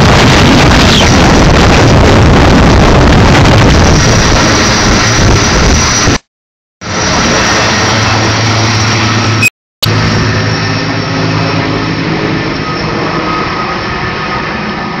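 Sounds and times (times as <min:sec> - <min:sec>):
helicopter flying overhead: 0:00.0 - 0:06.2, 0:06.8 - 0:15.0.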